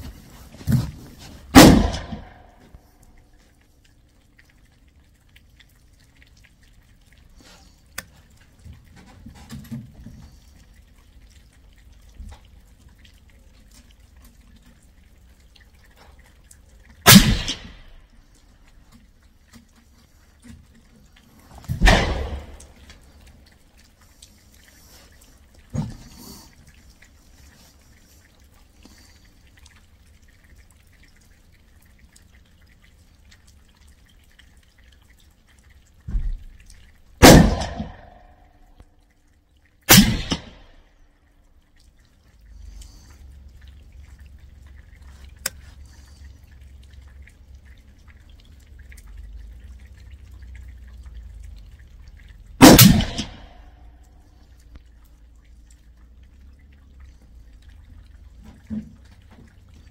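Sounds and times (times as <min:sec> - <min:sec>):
suppressed rifle shots echoing: 0:01.6 - 0:02.5, 0:17.1 - 0:17.8, 0:21.8 - 0:22.6, 0:37.2 - 0:38.2, 0:39.9 - 0:40.7, 0:52.6 - 0:53.6.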